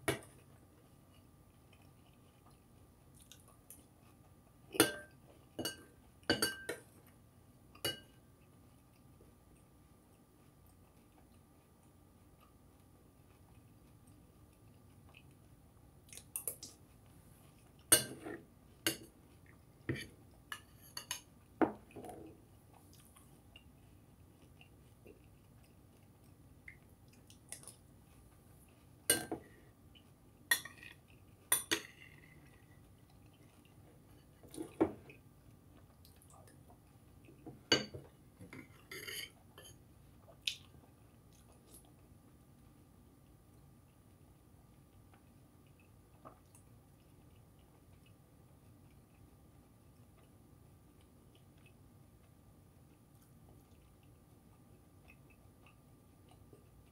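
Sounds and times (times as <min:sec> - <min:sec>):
spoon clinking against bowl: 0:04.8 - 0:06.9, 0:07.8 - 0:08.2.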